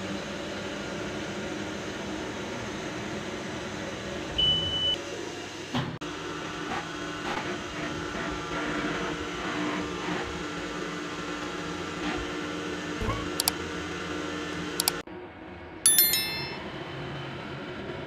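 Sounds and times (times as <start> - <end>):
sharp clicks: 13.2 - 13.6, 14.8 - 15.0.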